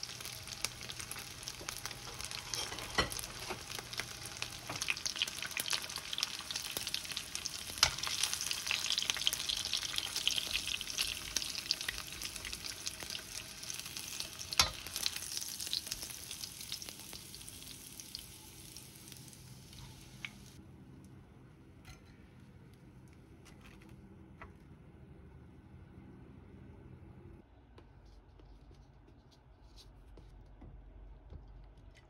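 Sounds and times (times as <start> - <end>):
cutlets sizzling in oil: 0.0 - 20.6.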